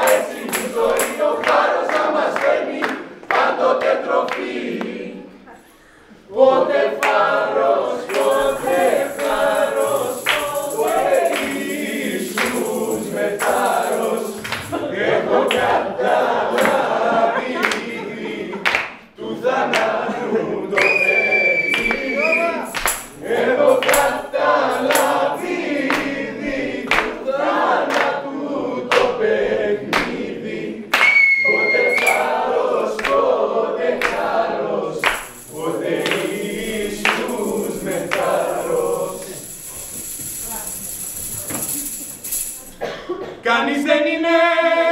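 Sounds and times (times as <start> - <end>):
choir singing: 0.0 - 40.2, 42.8 - 44.9
sharp percussive hits: 8.1 - 14.8, 35.0 - 42.9.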